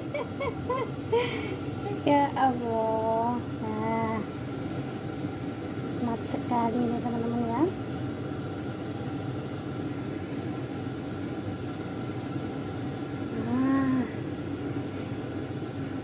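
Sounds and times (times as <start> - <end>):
woman humming: 0.0 - 2.1, 13.3 - 14.2
steady background hum: 0.0 - 16.0.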